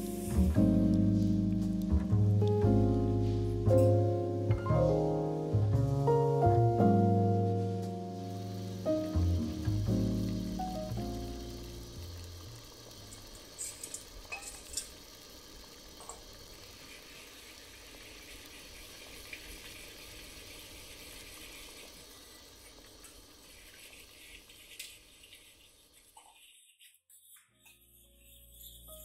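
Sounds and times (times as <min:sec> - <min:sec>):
sauce simmering bubbling hiss: 0:08.0 - 0:26.5.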